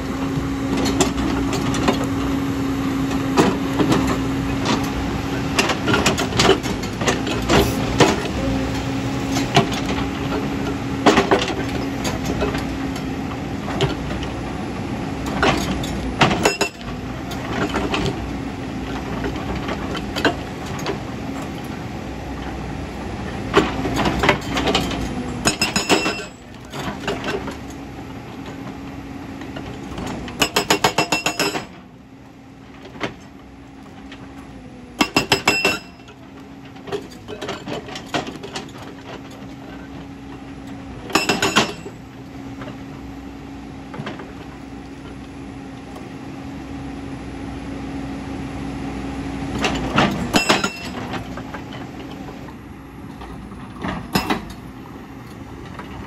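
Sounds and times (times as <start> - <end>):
diesel engine running: 0.0 - 56.0
hydraulic rock breaker hammering: 15.2 - 18.2, 23.5 - 27.6, 29.8 - 31.8, 35.0 - 36.2, 41.0 - 42.0, 49.6 - 51.4, 53.8 - 54.7.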